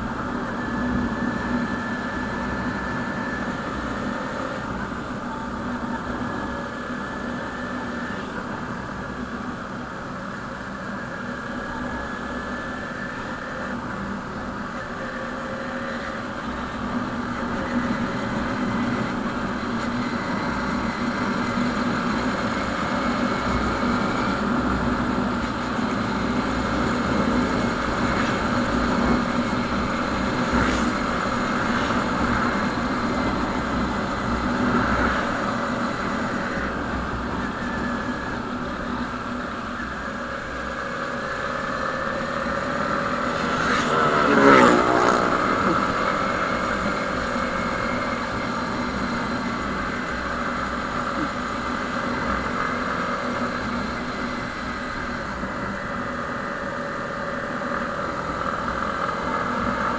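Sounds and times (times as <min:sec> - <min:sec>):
motorcycle engine cruising: 0:00.0 - 0:59.9.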